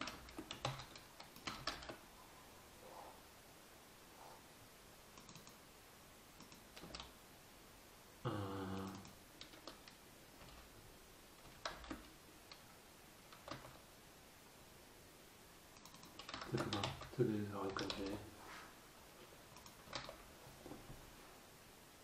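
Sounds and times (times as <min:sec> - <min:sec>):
keyboard and mouse clicks: 0:00.0 - 0:02.0, 0:05.2 - 0:05.6, 0:06.4 - 0:07.2, 0:08.8 - 0:10.7, 0:11.4 - 0:12.7, 0:13.3 - 0:13.9, 0:15.8 - 0:18.2, 0:19.5 - 0:20.3.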